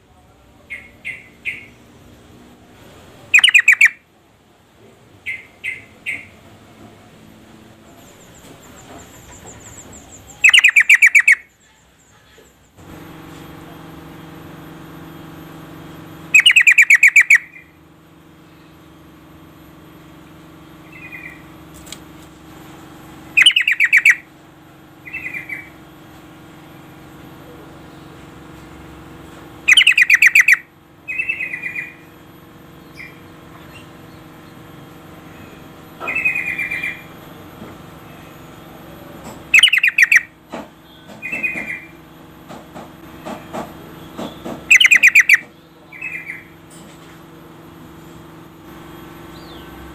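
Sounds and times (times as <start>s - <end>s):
steady low hum: 0.0s - 49.9s
bird chattering calls: 0.7s - 1.8s, 3.3s - 4.0s, 5.2s - 6.4s, 7.9s - 12.7s, 16.3s - 17.7s, 23.4s - 24.3s, 25.0s - 25.8s, 29.7s - 32.0s, 36.0s - 37.1s, 39.5s - 42.0s, 43.2s - 46.6s.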